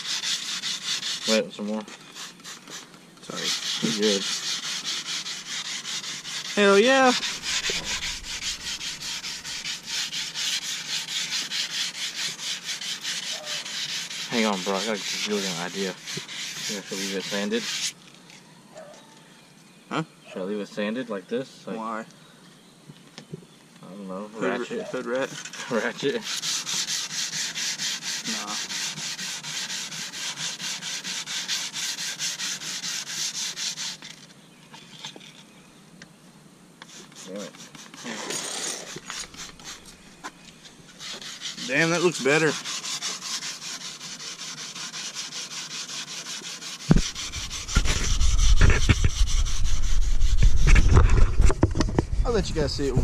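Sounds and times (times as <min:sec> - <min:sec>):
wet sandpaper scrubbing: 0:00.0 - 0:18.0, 0:24.9 - 0:35.4, 0:36.8 - 0:51.4.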